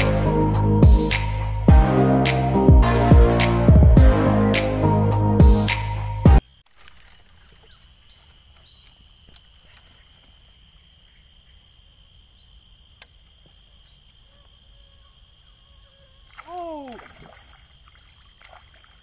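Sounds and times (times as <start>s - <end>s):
high-pitched insect drone: 0.0s - 3.6s.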